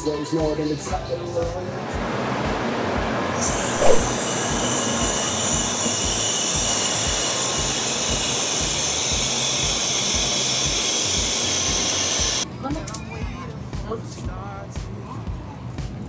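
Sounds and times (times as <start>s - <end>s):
high whine: 3.7s - 4.4s.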